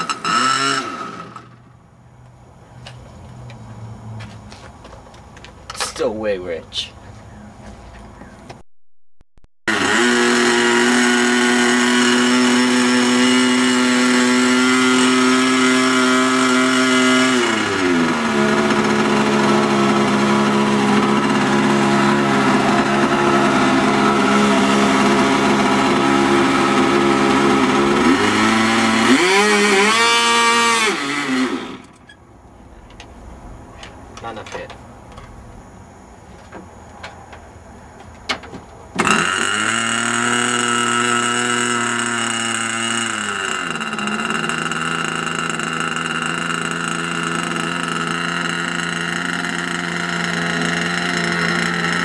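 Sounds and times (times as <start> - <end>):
model airplane engine running: 9.7 - 31.9, 39.0 - 52.0.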